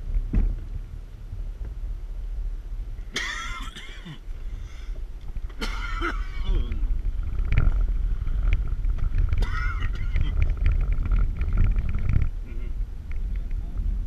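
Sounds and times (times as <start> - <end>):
vehicle rumbling on dirt road: 0.0 - 14.0
vehicle jolts: 3.0 - 13.3.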